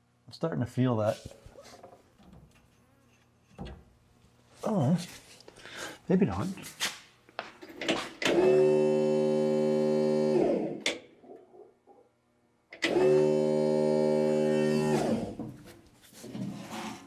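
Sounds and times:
fuel pump whine: 0:08.2 - 0:10.8, 0:12.8 - 0:15.5.

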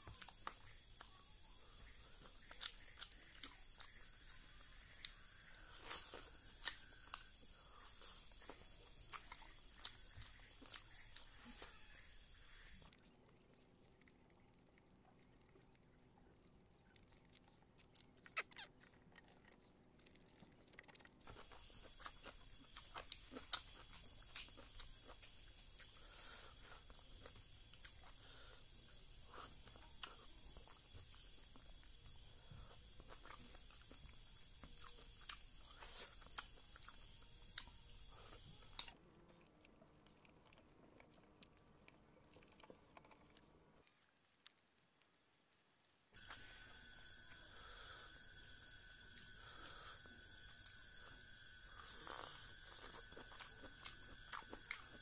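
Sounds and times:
chewing and lip smacks: 0:00.0 - 0:05.2, 0:05.9 - 0:11.6, 0:12.9 - 0:45.2, 0:50.0 - 0:55.0
steady high hiss: 0:00.0 - 0:12.9, 0:46.2 - 0:55.0.

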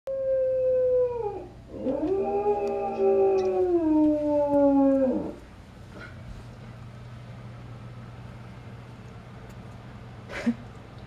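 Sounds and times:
dog howling: 0:00.1 - 0:05.4.

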